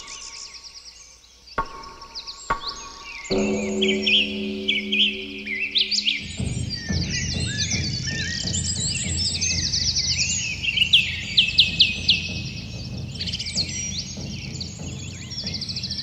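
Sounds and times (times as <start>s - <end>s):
birds chirping and trilling: 0.0s - 16.0s
steady low rumble: 3.3s - 16.0s.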